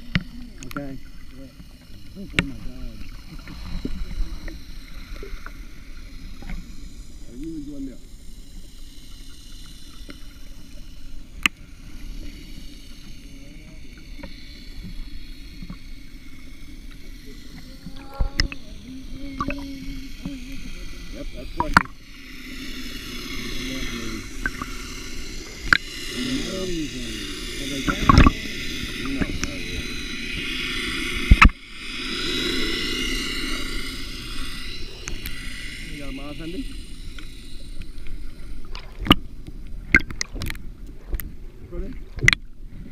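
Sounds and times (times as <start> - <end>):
underwater rumble: 0.0 - 42.9
faint high tones: 13.0 - 38.7.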